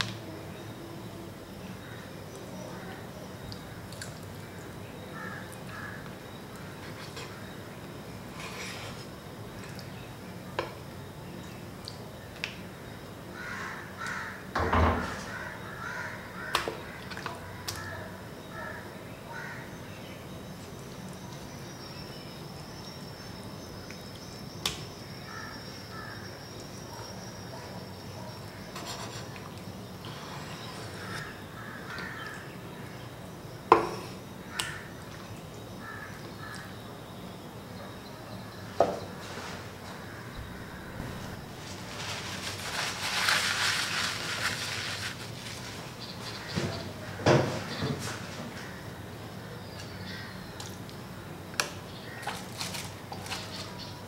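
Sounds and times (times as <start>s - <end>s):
birds calling: 12.2s - 44.9s, 45.5s - 54.0s.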